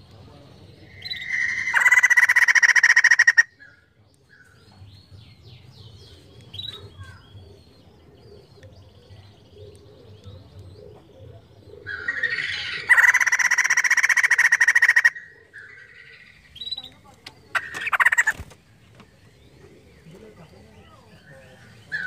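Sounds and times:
bird chattering call: 0.8 - 3.8, 11.5 - 18.6
faint bird chirps and squeaks: 6.0 - 8.6.

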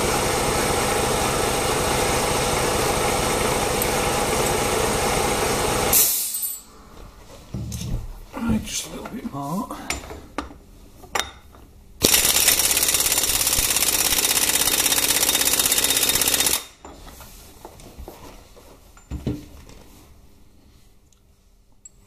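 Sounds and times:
impact wrench rattling: 12.0 - 16.8.

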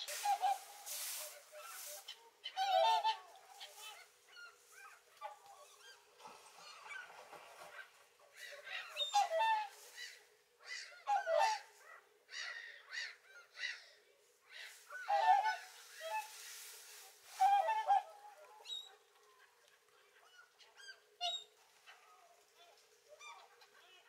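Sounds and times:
swans honking: 0.0 - 11.8, 14.5 - 19.0.

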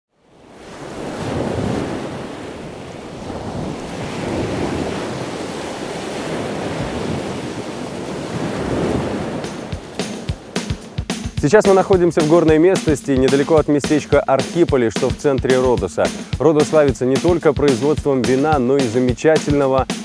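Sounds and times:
surf-like wash of noise: 0.2 - 10.9.

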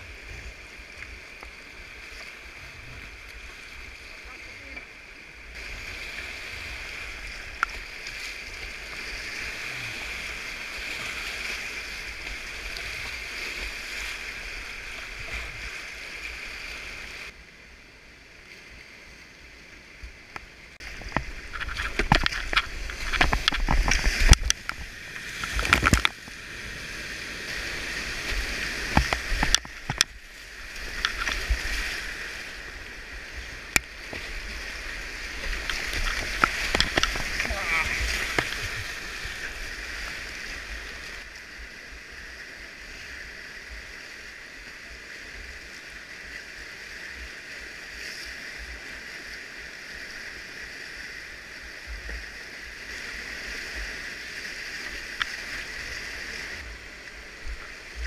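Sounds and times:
paddle splashes and sloshing: 0.0 - 17.4, 19.7 - 58.0
whitewater rapids rushing: 5.6 - 17.3, 26.6 - 45.9.

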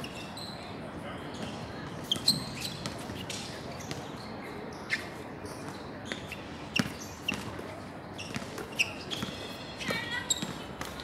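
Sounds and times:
sneakers squeaking: 0.0 - 11.0
basketball bouncing on hard court: 8.2 - 11.0.

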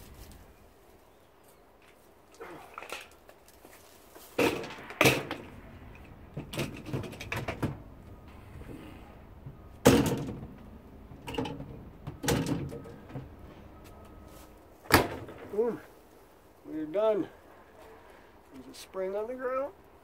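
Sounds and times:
dishwasher racks clanking and rattling: 9.9 - 10.4, 11.2 - 13.0.

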